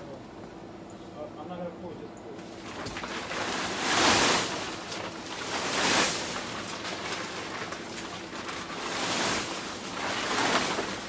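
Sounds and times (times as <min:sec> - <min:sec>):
plastic tarp rustling: 0:02.4 - 0:11.0.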